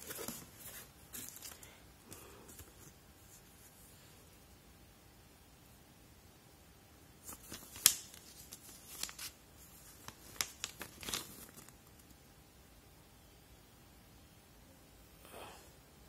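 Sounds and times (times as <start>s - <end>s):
paper crackling and rustling: 0.0s - 1.8s, 7.2s - 12.2s.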